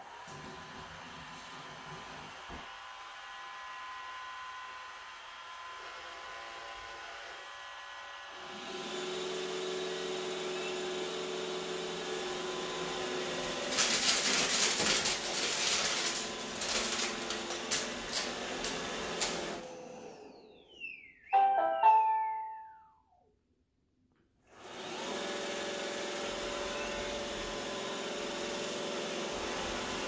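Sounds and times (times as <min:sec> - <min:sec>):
candies rattling in vacuum: 0:13.4 - 0:19.6.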